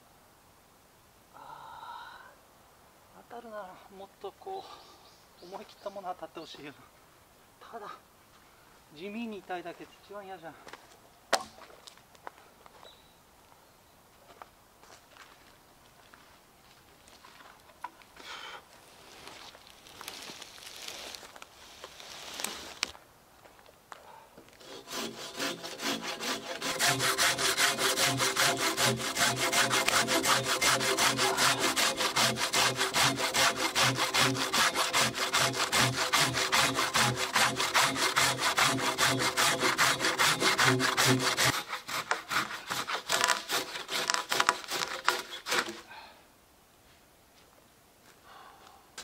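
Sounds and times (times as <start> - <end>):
hand saw cutting through log: 24.6 - 45.9.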